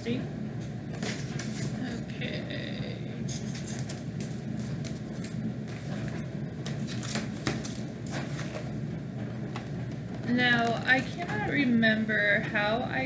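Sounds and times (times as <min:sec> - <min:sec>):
low background hum: 0:00.0 - 0:13.0
paper and packaging rustling: 0:00.9 - 0:02.0, 0:03.3 - 0:08.8.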